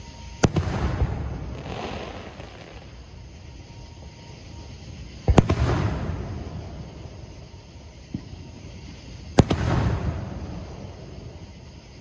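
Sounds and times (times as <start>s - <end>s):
fireworks shells bursting: 0.4s - 3.2s.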